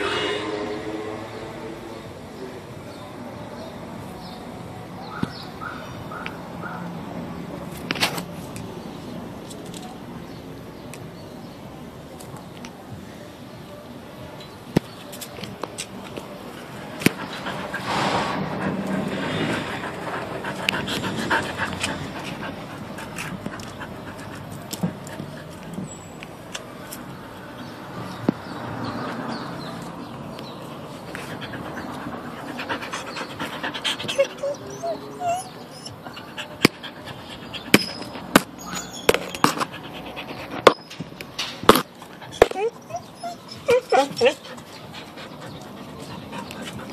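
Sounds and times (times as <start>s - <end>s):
dog panting: 16.6s - 25.8s, 30.8s - 38.3s, 39.4s - 40.9s, 42.0s - 46.9s.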